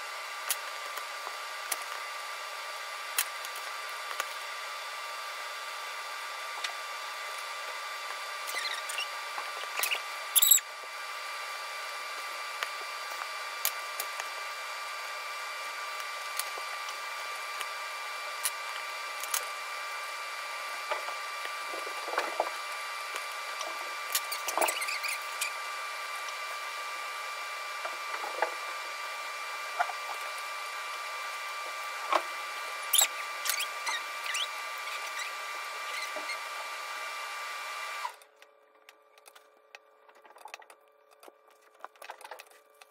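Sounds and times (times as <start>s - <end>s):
high-pitched hum: 3.8s - 37.0s.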